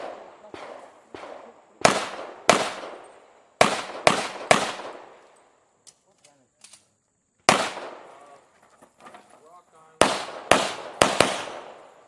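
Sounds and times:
pistol shots echoing: 0.0 - 5.3, 7.5 - 8.4, 9.9 - 12.0.

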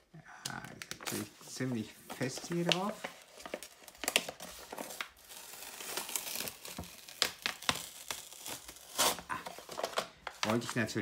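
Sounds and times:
plastic wrapping crinkling: 0.4 - 11.0
paper tearing: 2.2 - 10.7.

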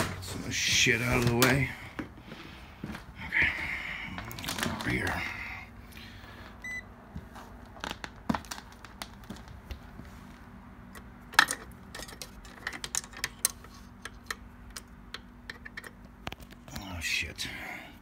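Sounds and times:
short electronic beep: 6.6 - 6.8.

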